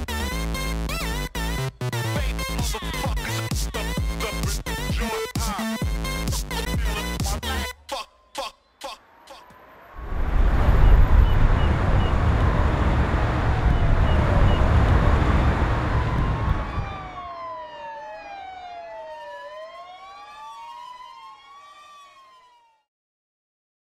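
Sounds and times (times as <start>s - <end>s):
siren wailing: 8.8s - 22.9s
deep rumbling noise: 9.9s - 17.2s.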